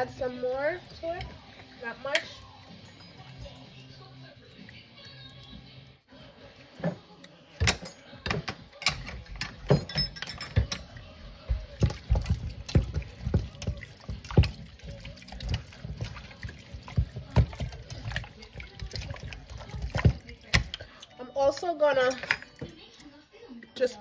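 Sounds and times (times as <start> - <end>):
hands squelching wet paste into chicken: 11.0 - 21.0.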